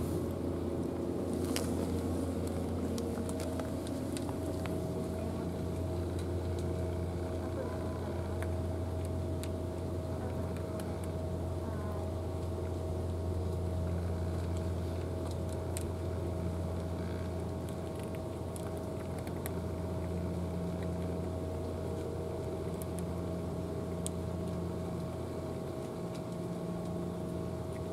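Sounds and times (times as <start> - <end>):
low mechanical drone: 0.0 - 27.9
cat crunching dry kibble: 0.7 - 11.4, 13.2 - 27.9.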